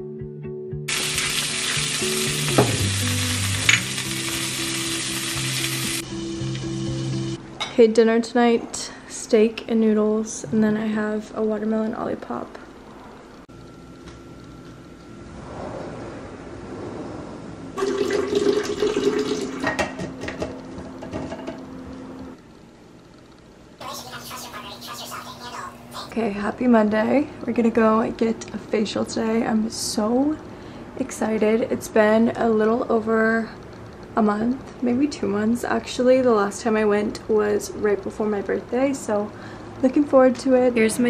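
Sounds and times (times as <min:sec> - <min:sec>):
vegetables sizzling in a skillet: 0:00.9 - 0:07.3
water pouring into a glass: 0:17.8 - 0:19.6.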